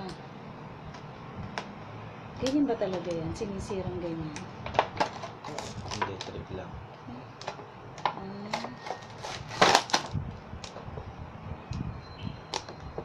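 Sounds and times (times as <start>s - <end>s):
plastic packaging crackling: 4.7s - 6.4s, 7.3s - 10.9s.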